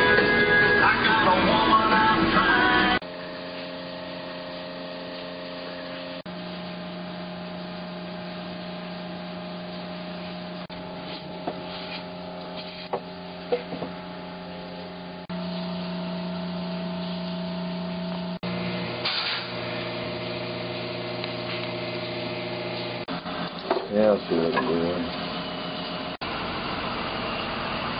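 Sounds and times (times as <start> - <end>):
motor humming: 12.1 - 27.9.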